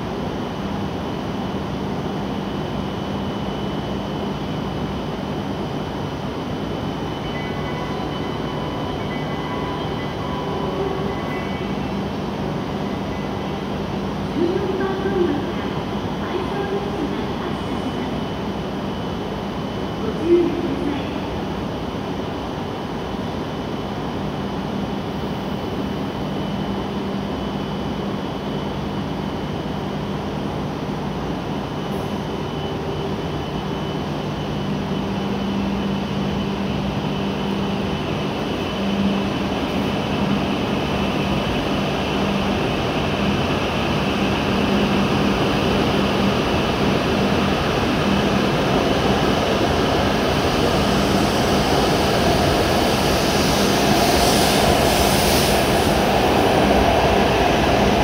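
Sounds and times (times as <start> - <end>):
train running equipment hum: 0.0 - 58.0
train pulling away: 31.8 - 58.0.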